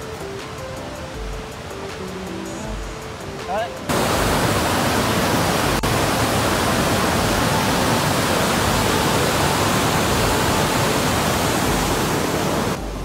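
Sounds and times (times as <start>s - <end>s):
water gushing from sluice: 3.9s - 12.8s.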